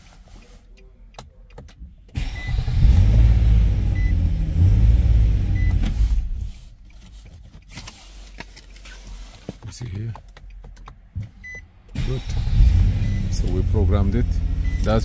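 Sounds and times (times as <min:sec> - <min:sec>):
car engine running: 0:11.9 - 0:15.0.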